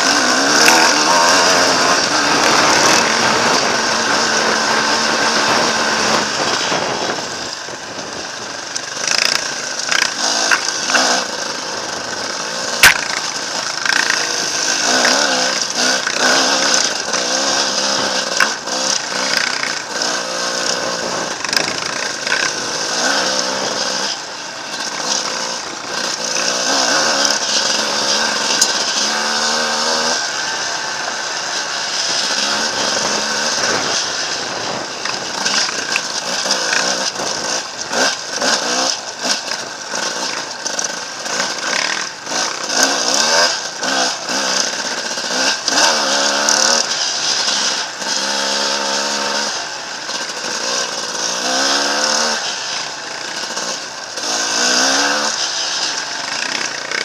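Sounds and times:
dirt bike engine revving: 0.0s - 57.0s.

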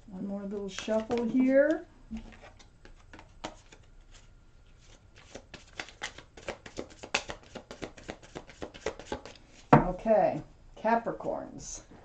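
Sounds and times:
cards being shuffled: 0.5s - 9.6s.

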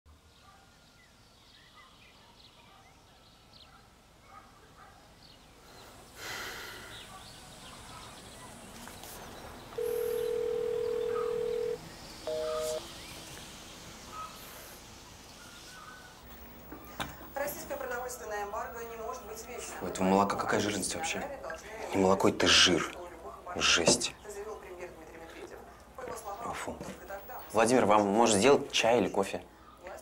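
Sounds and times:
faint bird chirps: 9.3s - 13.3s
telephone beeps: 9.8s - 12.8s.

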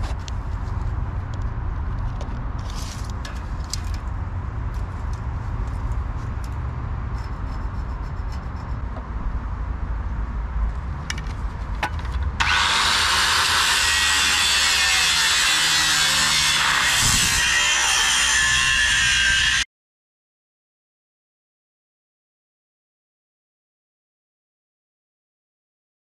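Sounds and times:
angle grinder cutting steel: 12.4s - 19.7s.

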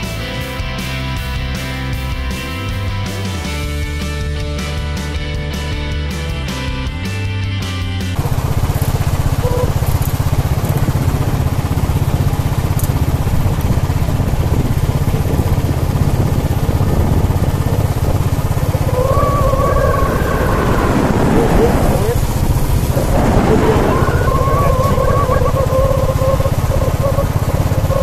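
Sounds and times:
vehicle engine running: 0.0s - 28.0s
wavering higher tone: 9.4s - 9.8s.

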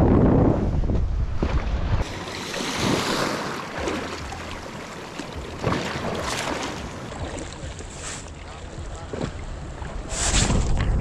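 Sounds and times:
wind buffeting microphone: 0.0s - 2.1s, 8.6s - 11.0s
lake waves splashing: 1.4s - 11.0s.

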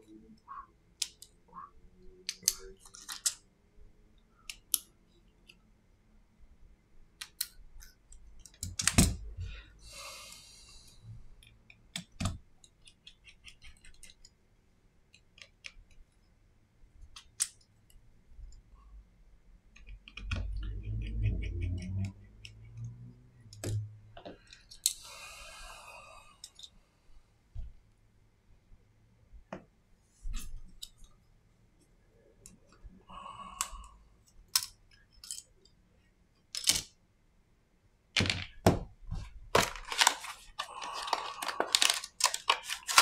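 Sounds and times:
tools clicking and scraping on parts: 26.4s - 26.8s, 34.2s - 35.8s.

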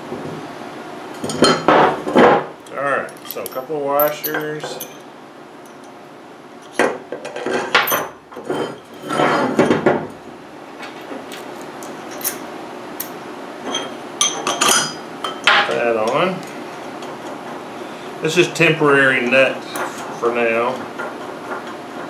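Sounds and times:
steel parts clinking and knocking: 3.1s - 5.0s.

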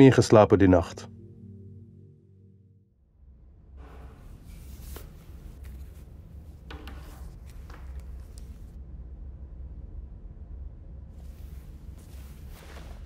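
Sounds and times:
low hum: 0.0s - 13.0s
low held music tone: 3.8s - 13.0s
clothing rustle: 3.9s - 8.8s, 11.2s - 13.0s
headphones clicking and tapping: 4.8s - 8.8s.

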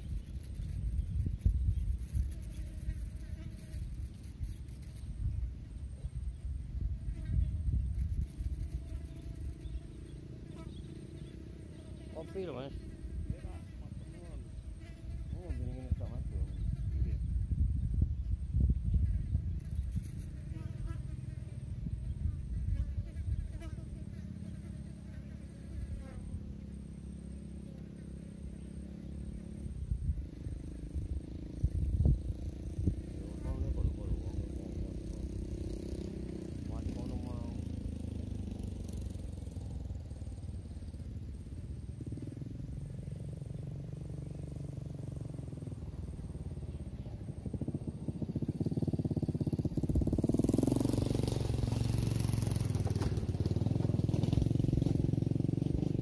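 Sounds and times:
distant motor humming: 0.0s - 17.8s, 19.0s - 56.0s
low rumbling: 0.0s - 56.0s.

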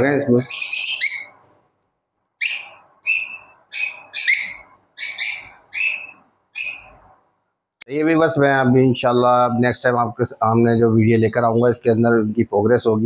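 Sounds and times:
bird chirping: 0.0s - 1.5s, 2.4s - 7.2s, 9.2s - 12.3s.

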